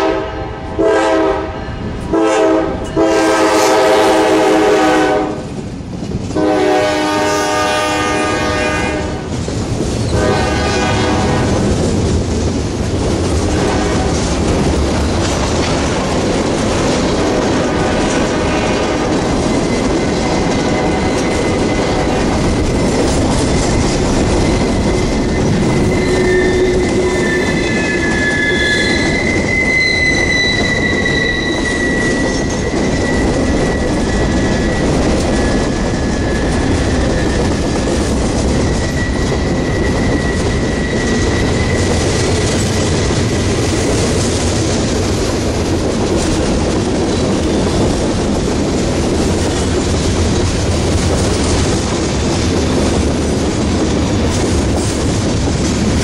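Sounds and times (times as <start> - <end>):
locomotive horn blast: 0.0 - 5.4, 6.4 - 9.3, 10.2 - 11.6, 13.5 - 14.2
freight cars rumbling and clattering: 9.0 - 56.0
train wheels squealing: 17.4 - 45.5.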